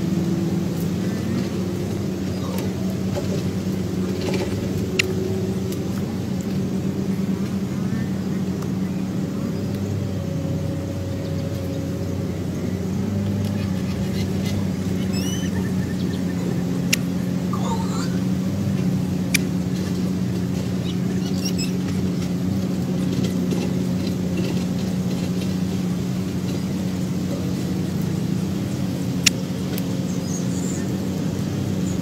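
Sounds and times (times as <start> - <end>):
low mechanical hum: 0.0 - 32.0
faint bird chirps: 13.4 - 18.3, 20.7 - 22.1.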